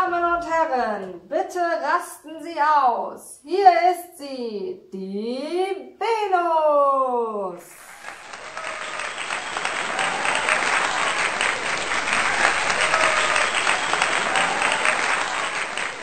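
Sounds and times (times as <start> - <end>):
audience clapping: 7.7 - 16.0
people cheering: 7.7 - 16.0.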